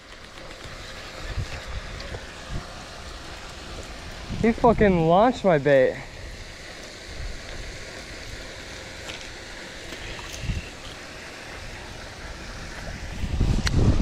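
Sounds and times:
wind buffeting microphone: 0.5s - 5.3s, 6.1s - 14.0s.

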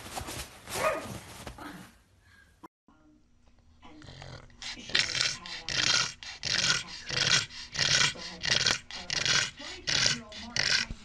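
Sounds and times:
dog rasping breaths: 4.0s - 11.0s.

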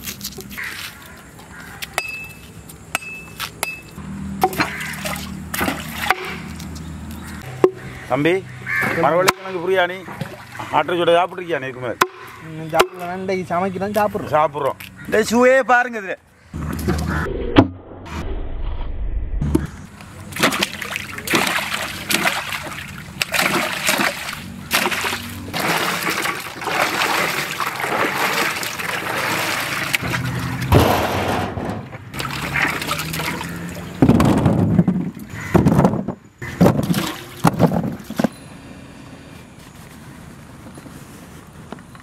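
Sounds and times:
water splashing and sloshing: 4.3s - 11.4s, 19.6s - 38.4s.

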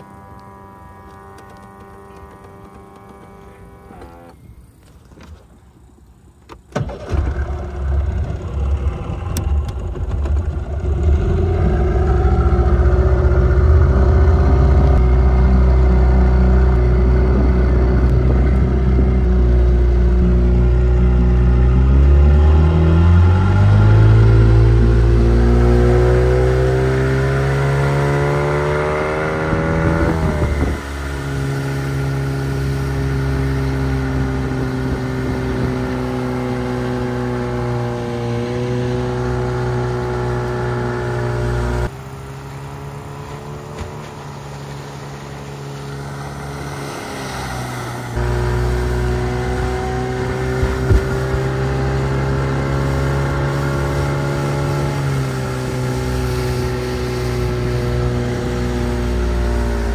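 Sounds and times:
outboard motor running: 0.0s - 5.4s, 6.7s - 59.9s.

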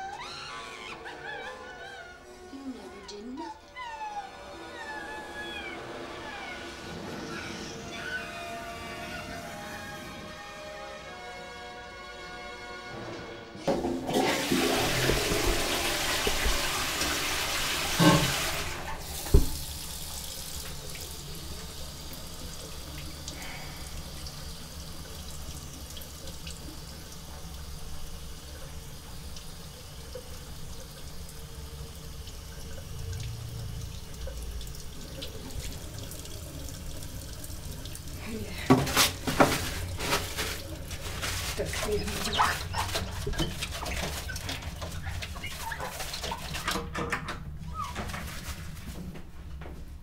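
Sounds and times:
toilet flushing: 0.0s - 2.2s, 3.8s - 49.7s.

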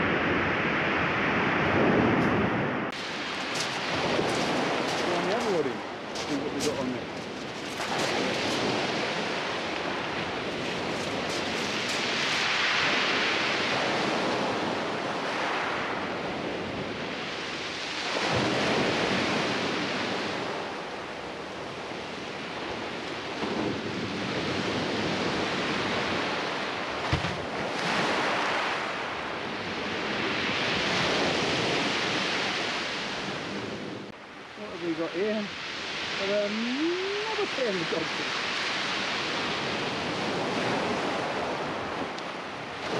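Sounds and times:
sea waves breaking on beach: 0.0s - 42.9s.

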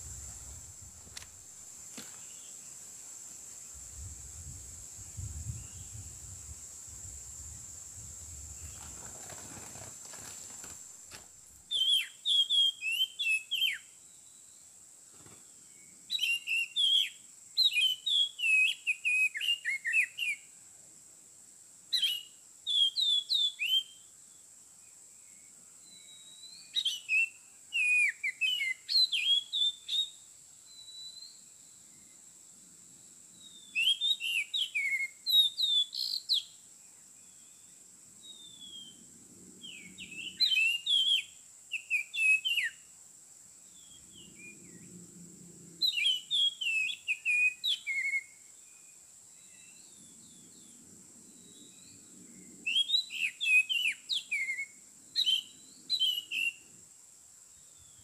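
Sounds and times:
bird singing whistled phrases: 11.7s - 13.9s, 16.1s - 20.5s, 22.0s - 24.0s, 25.9s - 31.4s, 33.5s - 36.5s, 39.6s - 42.8s, 45.8s - 48.4s, 52.7s - 56.6s.

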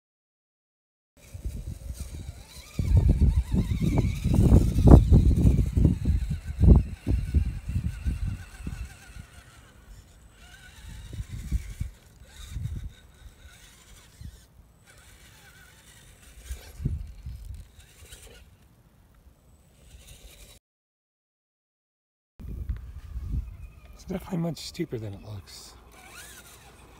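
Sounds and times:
wind buffeting microphone: 1.2s - 18.2s, 22.4s - 24.4s
faint electric motor whine: 1.2s - 20.6s, 22.4s - 26.9s.

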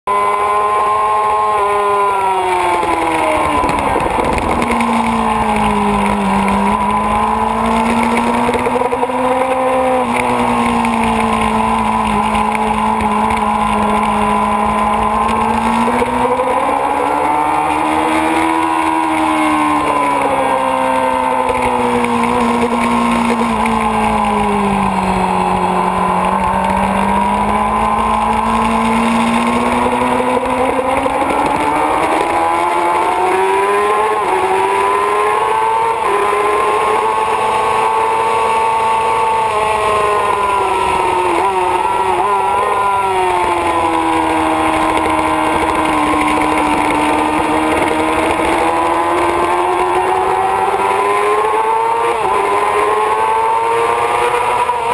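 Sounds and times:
motorcycle engine revving: 0.0s - 54.9s
wind rush: 3.3s - 6.6s.

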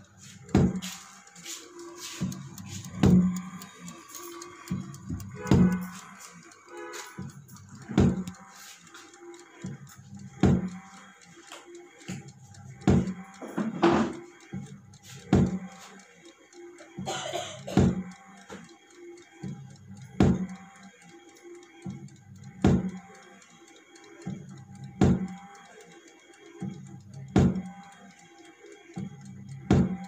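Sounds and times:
motor humming: 0.0s - 13.6s.

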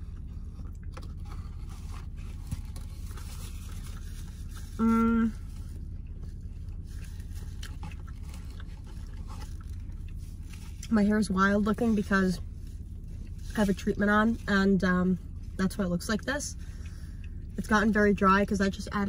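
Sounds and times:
low rumble in car cabin: 0.0s - 19.0s
woman humming mmm while eating: 4.8s - 5.5s.

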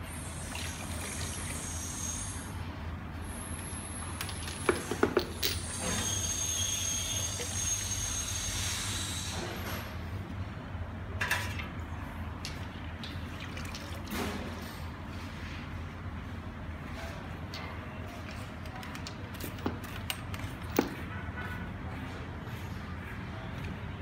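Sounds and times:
liquid pouring into plastic bucket: 12.6s - 14.6s.

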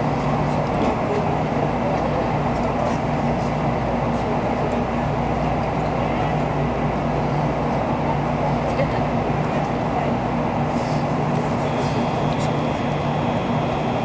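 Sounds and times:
train equipment and ventilation hum: 0.0s - 14.0s.

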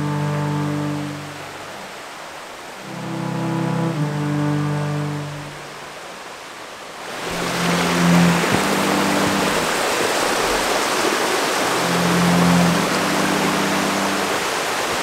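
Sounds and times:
low background music: 0.0s - 1.7s, 2.8s - 5.7s, 7.3s - 9.8s, 11.7s - 14.4s
creek rushing: 0.0s - 15.0s.

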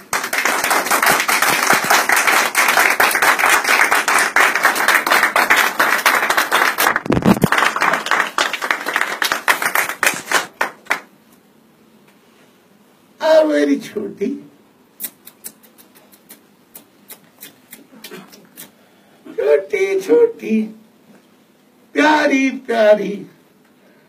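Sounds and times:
people clapping: 0.0s - 11.2s.

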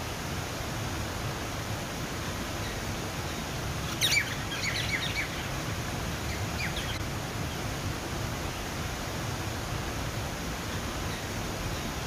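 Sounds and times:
waterfall splashing into pond: 0.0s - 12.0s
bird chirping: 3.8s - 5.6s, 6.2s - 7.0s.

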